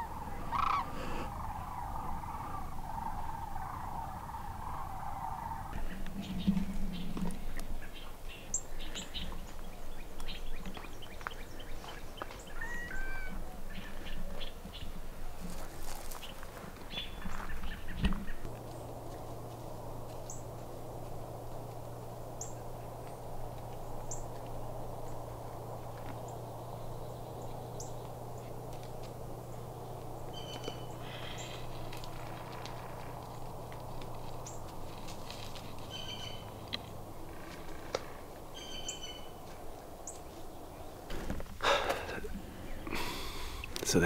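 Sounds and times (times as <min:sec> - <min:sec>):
steady low hum: 0:00.0 - 0:12.3
birds chirping: 0:00.0 - 0:44.0
footsteps crunching on dirt trail: 0:08.8 - 0:13.0, 0:15.4 - 0:26.4, 0:27.9 - 0:42.1.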